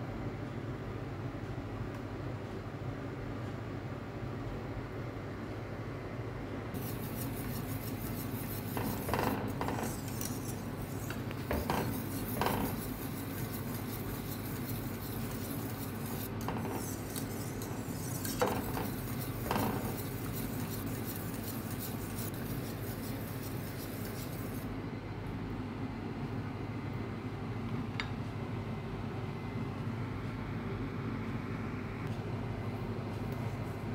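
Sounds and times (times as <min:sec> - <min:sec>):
steady low hum: 0:00.0 - 0:33.9
whisk scraping metal pot: 0:06.8 - 0:24.7.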